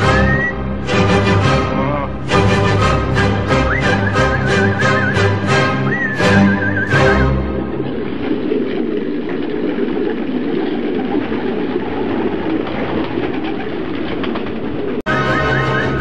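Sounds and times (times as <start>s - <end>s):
music: 0.0s - 7.8s, 15.1s - 16.0s
pigeons cooing: 3.7s - 16.0s.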